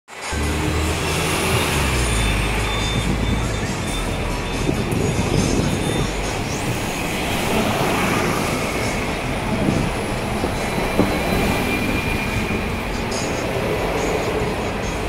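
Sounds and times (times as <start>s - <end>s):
tram wheels rumbling on rails: 0.1s - 15.0s
faint wheel squeal: 1.5s - 9.0s, 10.5s - 14.7s.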